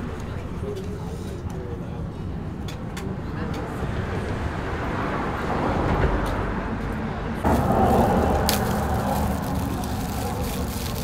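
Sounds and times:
passing cars: 3.5s - 11.0s.

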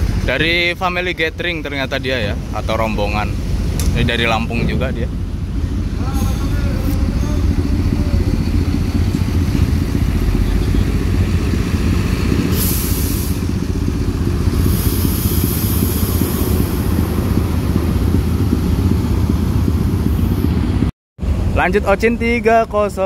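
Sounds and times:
bus engine rumbling: 0.0s - 23.0s
short air hisses: 12.5s - 13.5s, 14.6s - 16.9s.

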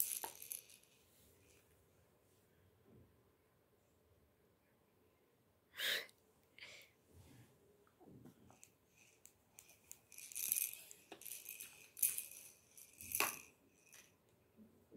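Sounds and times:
baby toys rattling and clicking: 0.0s - 0.9s, 8.6s - 14.1s.

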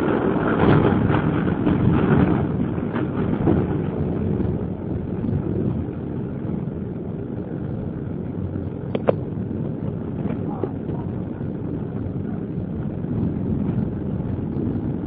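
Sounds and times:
train rumbling along track: 0.0s - 15.0s
sharp clicks: 8.9s - 9.2s.

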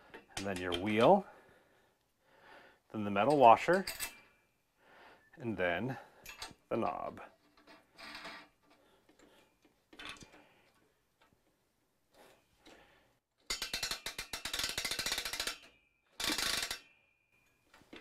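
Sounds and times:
ratchet clicking rapidly: 13.5s - 16.8s.

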